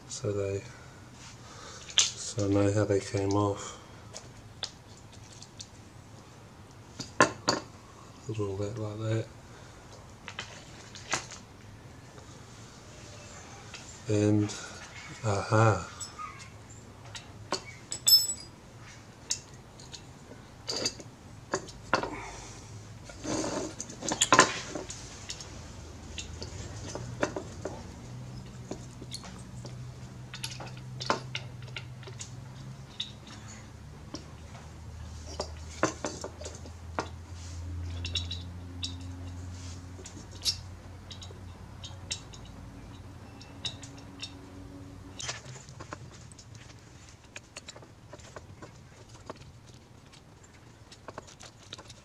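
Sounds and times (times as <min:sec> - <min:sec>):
metal tools clinking and scraping: 0:15.2 - 0:16.5, 0:17.9 - 0:18.6.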